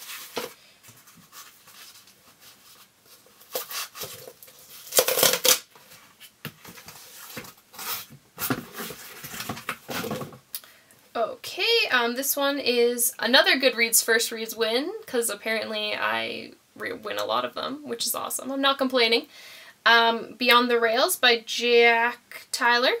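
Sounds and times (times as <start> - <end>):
package tearing and rustling: 3.1 - 6.0.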